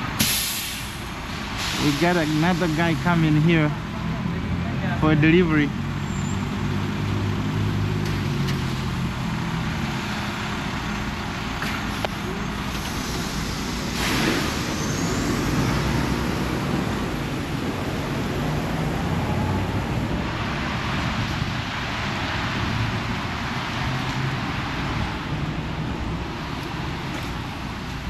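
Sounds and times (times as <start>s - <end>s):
diesel truck engine running: 0.0s - 23.8s
short air hiss: 0.2s - 2.9s, 12.8s - 15.3s.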